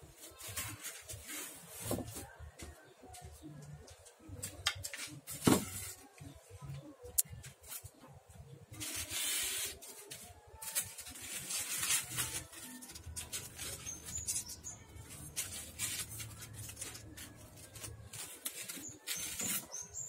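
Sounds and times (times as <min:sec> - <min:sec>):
foam scraping against wood: 0:08.7 - 0:20.0.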